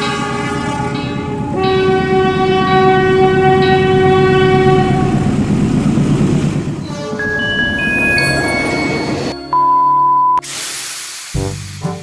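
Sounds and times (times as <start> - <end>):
locomotive air horn blast: 0.0 - 5.5.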